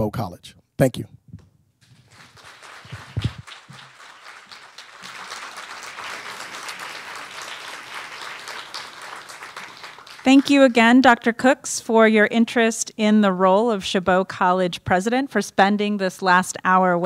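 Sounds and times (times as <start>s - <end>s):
audience applauding: 1.8s - 10.7s.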